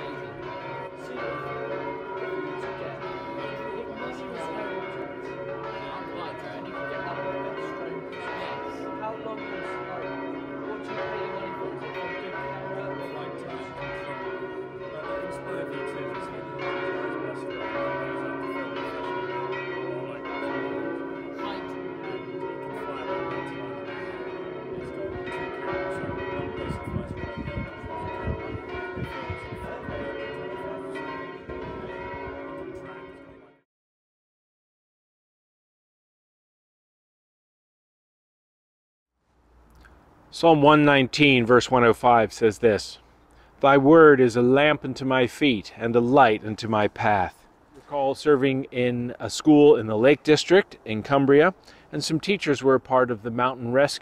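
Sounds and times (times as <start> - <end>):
church bells pealing: 0.0 - 33.6, 43.6 - 47.4.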